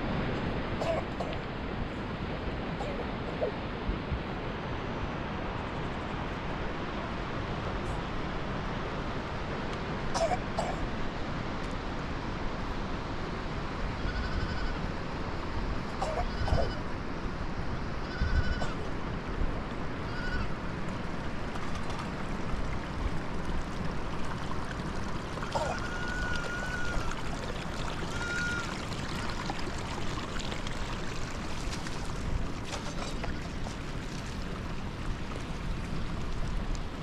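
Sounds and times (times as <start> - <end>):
young livestock bleating: 14.0 - 14.8, 16.1 - 16.8, 18.0 - 18.8, 20.0 - 20.5, 25.5 - 27.1, 28.1 - 28.7.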